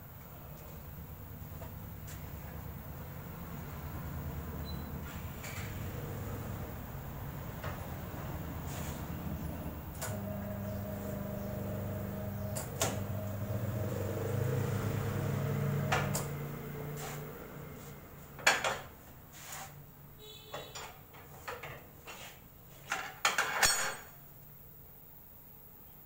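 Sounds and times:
brief squeak: 4.6s - 5.7s
turntable motor humming: 5.7s - 17.8s
metal clanks and knocks: 22.9s - 24.1s.

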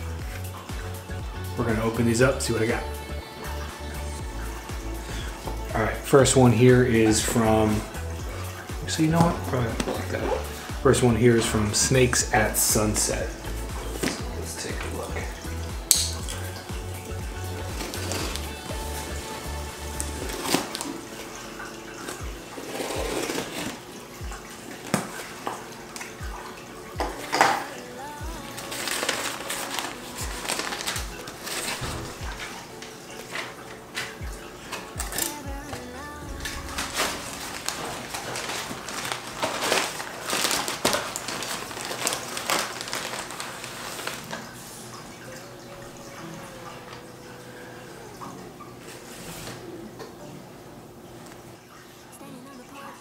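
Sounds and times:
cardboard scraping and rustling: 22.6s - 23.8s, 28.8s - 32.2s, 36.4s - 44.4s
blade slitting packing tape: 22.7s - 23.8s.

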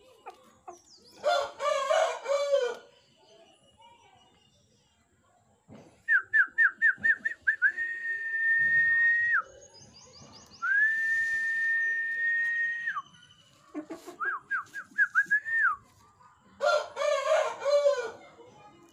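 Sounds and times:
rooster crowing: 1.3s - 2.8s, 16.6s - 18.2s
high whistled phrase: 6.2s - 9.4s, 10.6s - 13.1s.

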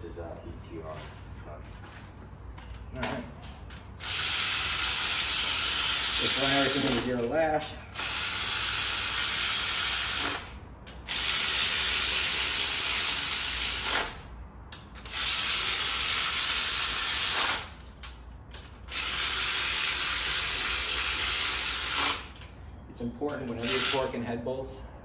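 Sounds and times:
air ratchet hissing: 4.0s - 7.1s, 7.9s - 14.2s, 14.8s - 18.0s, 18.6s - 22.5s, 23.6s - 24.1s.

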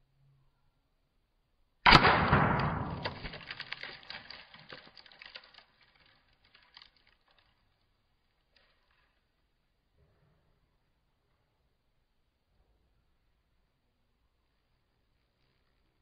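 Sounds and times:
sharp gunshot: 1.9s - 3.5s
apple bursting: 1.9s - 6.8s
fragments landing ticks: 1.9s - 7.7s.

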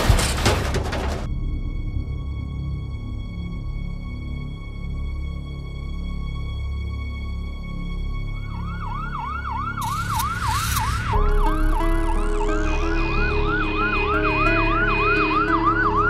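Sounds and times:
ambulance siren yelp: 8.5s - 16.0s
low synthesizer melody: 8.8s - 16.0s.

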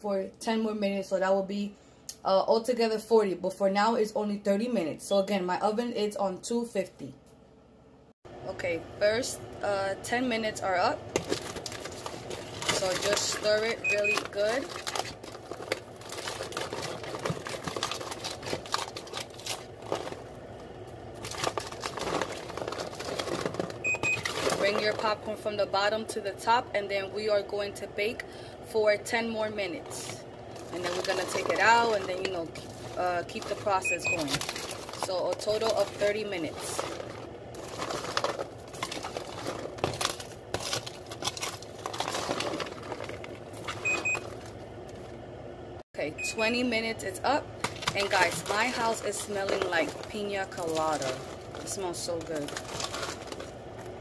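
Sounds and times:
popcorn crackling in foil pan: 11.1s - 25.4s, 29.8s - 44.6s, 47.6s - 54.0s.

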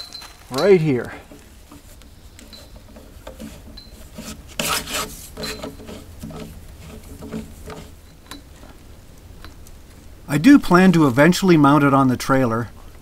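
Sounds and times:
cord rubbing and scraping on wood: 0.0s - 8.8s.

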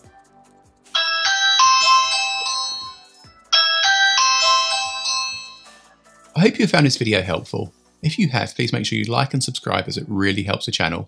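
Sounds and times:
doorbell chime: 1.0s - 5.8s.

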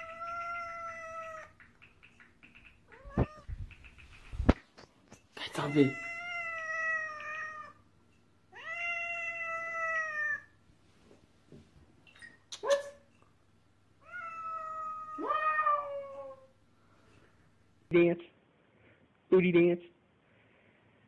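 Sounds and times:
cat meowing: 0.0s - 1.6s, 2.9s - 3.5s, 5.6s - 7.8s, 8.5s - 10.5s, 14.0s - 16.5s.

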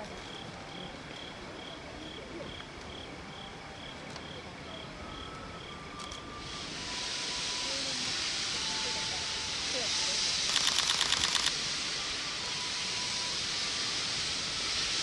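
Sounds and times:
hiss: 6.2s - 15.0s
cricket chirping: 10.5s - 11.6s.

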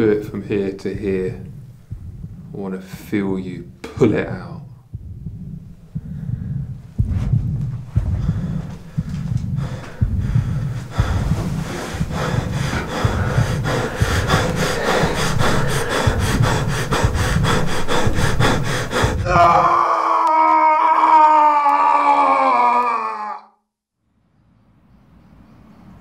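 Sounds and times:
fast rasping rhythmic noise: 0.0s - 19.6s
low pulsing throb: 0.0s - 19.7s.

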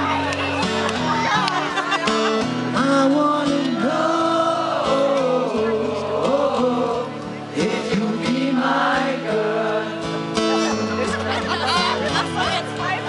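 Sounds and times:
live pop band: 0.0s - 13.0s
man singing: 2.7s - 10.4s.

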